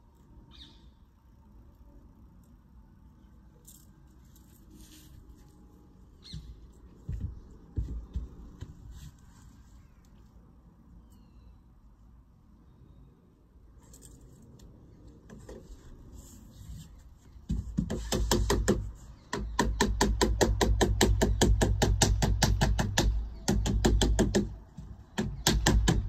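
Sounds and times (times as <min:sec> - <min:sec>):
rapid hammering: 0:17.5 - 0:26.0.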